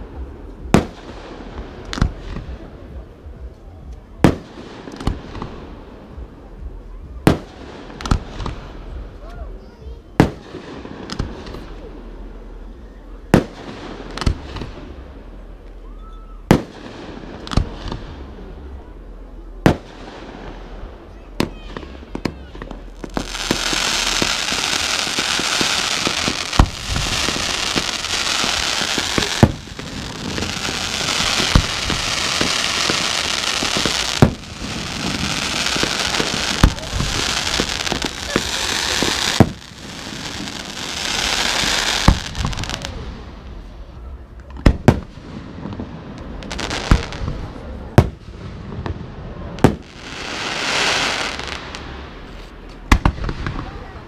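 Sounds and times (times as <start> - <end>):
firework bangs: 0.0 - 3.1, 7.1 - 9.2, 13.3 - 15.3, 16.4 - 18.7, 19.5 - 54.0
firework hissing crackle: 19.6 - 44.0, 44.7 - 54.0.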